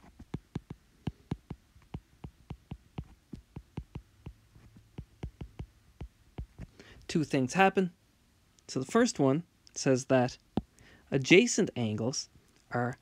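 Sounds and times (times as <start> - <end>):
stylus tapping on glass screen: 0.0 - 6.7.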